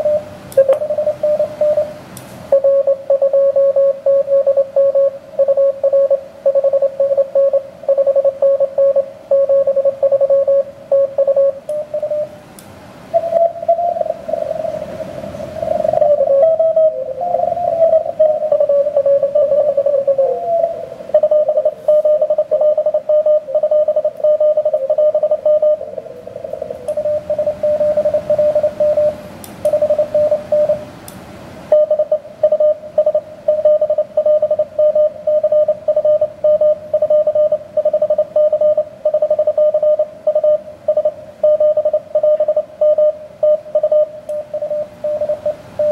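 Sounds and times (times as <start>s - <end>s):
morse code tone: 0.0s - 12.4s, 13.1s - 14.9s, 15.5s - 30.8s, 31.7s - 45.9s
radio band hiss: 13.2s - 30.8s.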